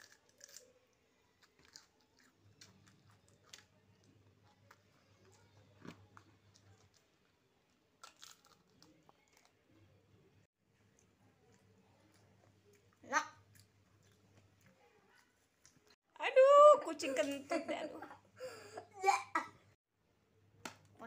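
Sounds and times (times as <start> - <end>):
chewing crisp cucumber: 0.0 - 9.8, 10.8 - 16.0.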